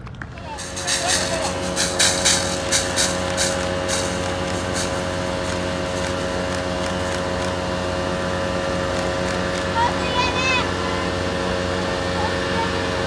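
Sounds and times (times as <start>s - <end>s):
fire engine pump humming: 0.0s - 13.0s
hose spraying water jet: 0.4s - 12.7s
short sharp sounds: 0.5s - 7.2s.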